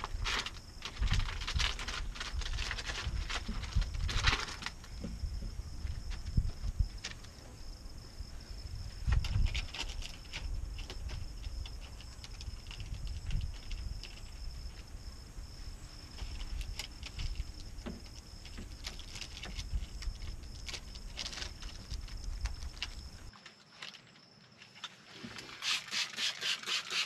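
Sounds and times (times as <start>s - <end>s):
wind on microphone: 0.0s - 23.3s
spray bottle squirts: 25.5s - 27.0s.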